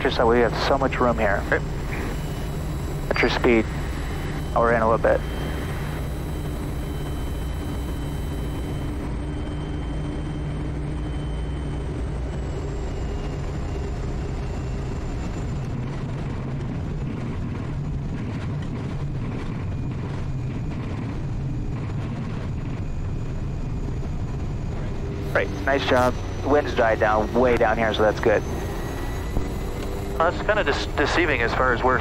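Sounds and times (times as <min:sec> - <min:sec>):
high whine: 0:00.0 - 0:16.4, 0:23.4 - 0:32.0
turboprop engine running: 0:00.0 - 0:32.0.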